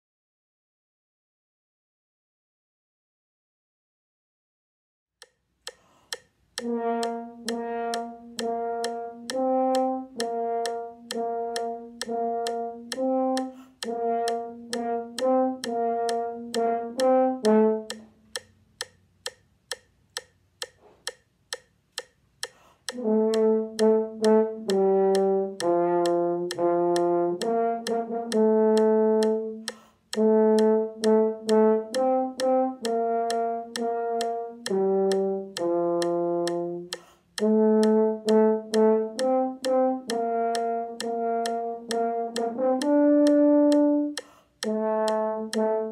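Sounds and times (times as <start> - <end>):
metronome ticking: 5.2 - 45.9
french horn playing: 6.6 - 18.0, 22.9 - 29.6, 30.2 - 45.9.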